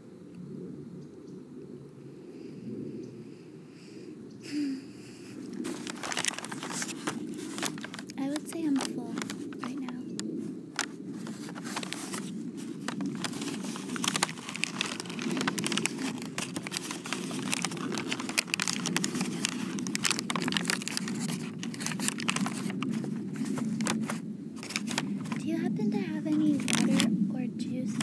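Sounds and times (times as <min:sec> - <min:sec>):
low background rumble: 0:00.0 - 0:28.0
paper bag crinkling: 0:05.4 - 0:27.1.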